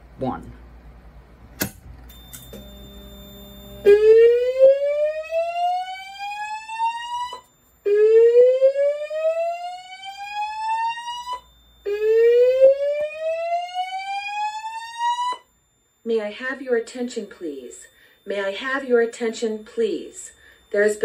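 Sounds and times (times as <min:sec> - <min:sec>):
fire alarm whoop tone: 0:02.1 - 0:15.5, 0:16.1 - 0:21.0.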